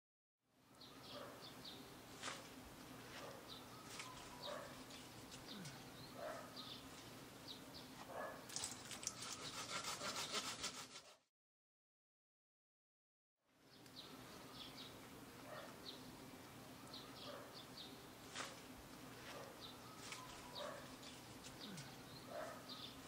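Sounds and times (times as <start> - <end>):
bird calls: 0.7 - 10.4, 13.8 - 23.0
hand saw cutting branches: 2.1 - 5.7, 8.6 - 11.2, 18.2 - 22.0.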